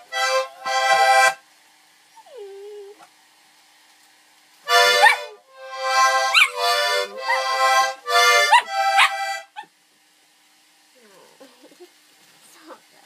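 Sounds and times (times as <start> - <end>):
accordion chords: 0.0 - 1.4, 4.6 - 9.6
puppy howling: 2.2 - 3.0.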